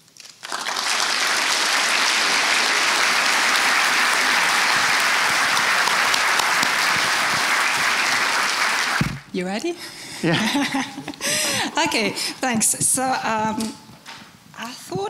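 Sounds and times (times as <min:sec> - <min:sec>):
audience applauding: 0:00.2 - 0:09.3.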